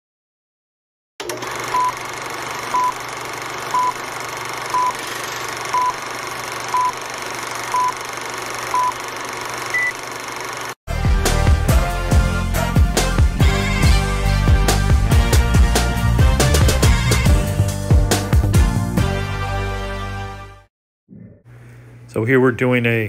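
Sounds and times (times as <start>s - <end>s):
short beeps: 9.7s - 10.0s.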